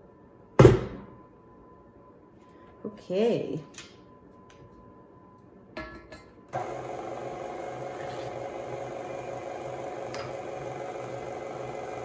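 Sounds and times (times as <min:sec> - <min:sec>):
stand mixer motor running: 0:06.6 - 0:12.0.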